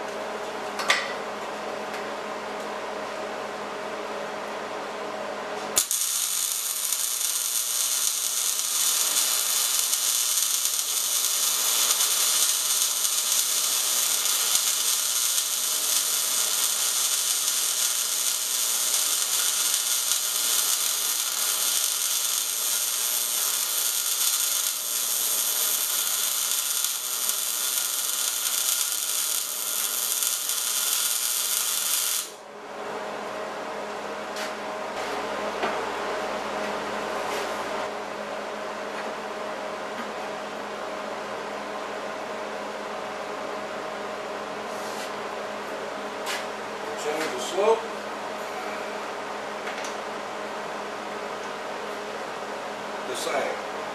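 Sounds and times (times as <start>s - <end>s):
welding arc sizzling: 5.7s - 32.4s.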